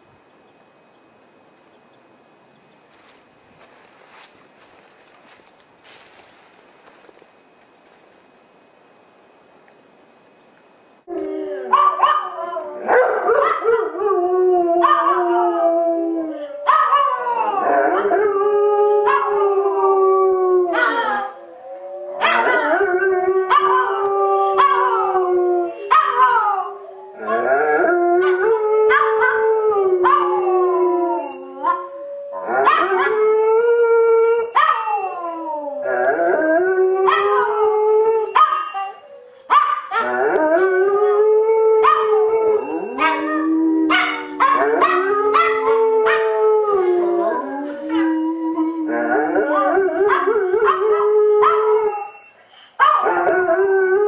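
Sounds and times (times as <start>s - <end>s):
dogs howling: 11.1s - 54.0s.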